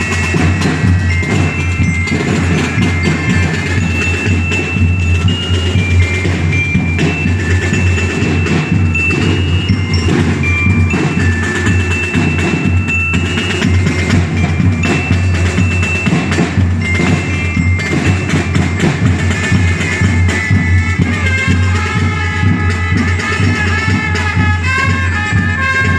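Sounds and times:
drums steady beat: 0:00.0 - 0:25.9
bugle melody: 0:17.9 - 0:25.9.

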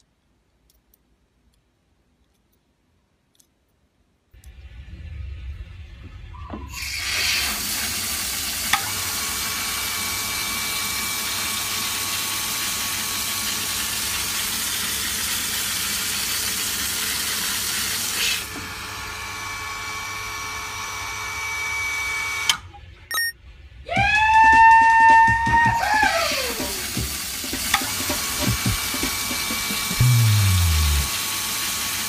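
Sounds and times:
water pump running: 0:06.8 - 0:21.0, 0:25.9 - 0:32.0
thin steady whine: 0:27.8 - 0:31.1.

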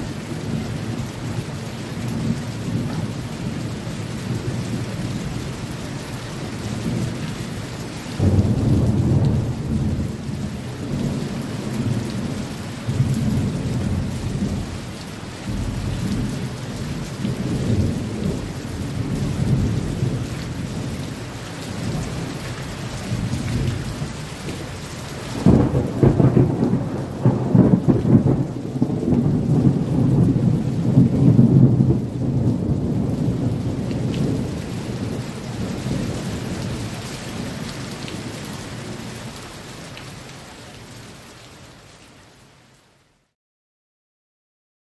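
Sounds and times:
steady rain: 0:00.0 - 0:43.4
rolling thunder: 0:08.2 - 0:21.0, 0:25.4 - 0:37.6.

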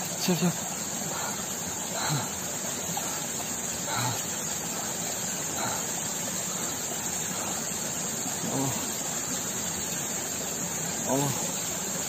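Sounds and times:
waterfall splashing on rock: 0:00.0 - 0:12.0
faint voice: 0:11.1 - 0:11.5.

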